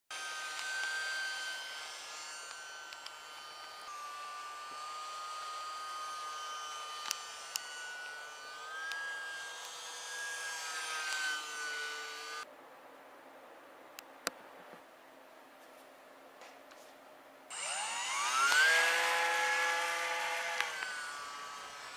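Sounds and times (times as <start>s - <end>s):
electric model plane motor whine: 0.1s - 12.5s, 17.5s - 21.9s.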